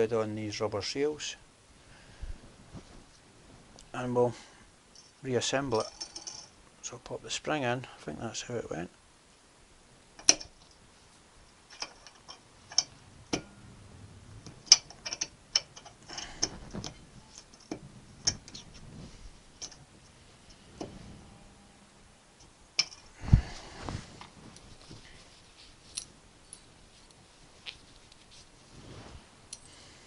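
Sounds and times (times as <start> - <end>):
small metal parts clicking: 5.7 - 6.5, 10.2 - 10.8, 11.7 - 13.5, 14.6 - 18.8, 19.6 - 19.8, 22.4 - 23.1.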